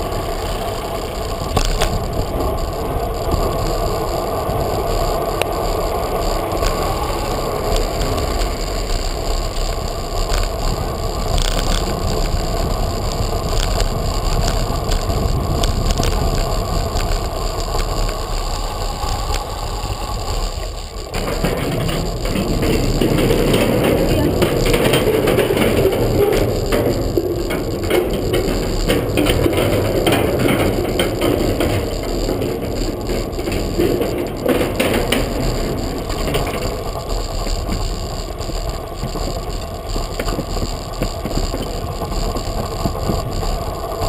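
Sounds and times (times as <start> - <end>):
bicycle tyres rumbling: 0.0 - 44.0
bike rattling: 0.0 - 44.0
wind on microphone: 0.0 - 44.0.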